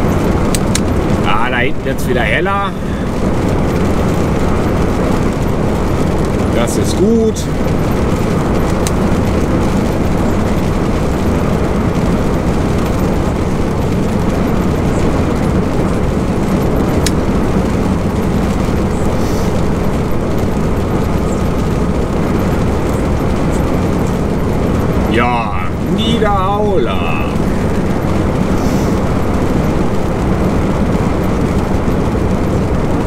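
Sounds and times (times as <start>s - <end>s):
truck cab drone: 0.0s - 33.0s.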